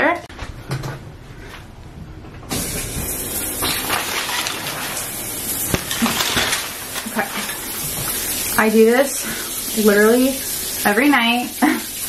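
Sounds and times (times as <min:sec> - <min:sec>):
shower spraying on tiles: 0:02.5 - 0:12.0.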